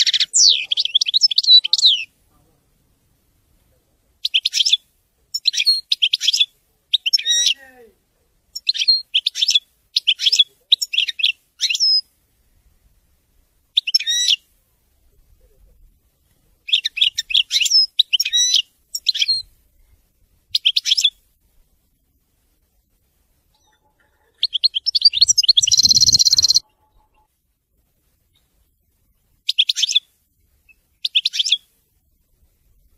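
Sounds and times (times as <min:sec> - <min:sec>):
goldfinch singing: 0:00.0 - 0:02.1, 0:23.6 - 0:27.2.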